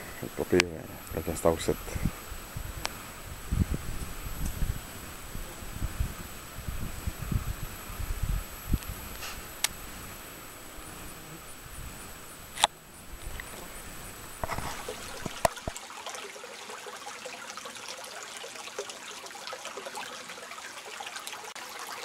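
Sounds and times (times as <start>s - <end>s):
water trickling and gurgling: 13.2s - 22.0s.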